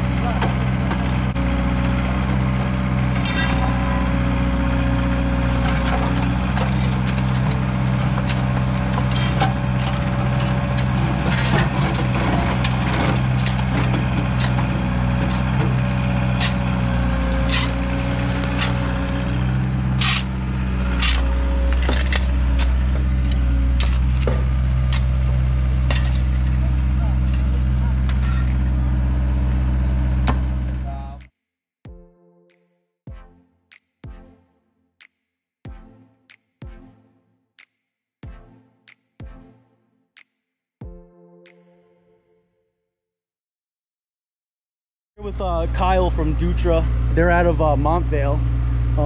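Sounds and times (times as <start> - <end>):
excavator diesel engine running: 0.0 - 31.2, 45.2 - 49.0
excavator bucket knocking and clanking: 5.7 - 16.7.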